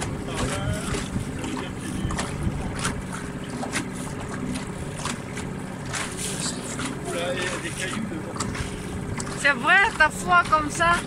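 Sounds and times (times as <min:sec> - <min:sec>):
water rushing along hull: 0:00.0 - 0:11.0
water splashing against hull: 0:00.0 - 0:11.0
wind buffeting microphone: 0:00.0 - 0:11.0.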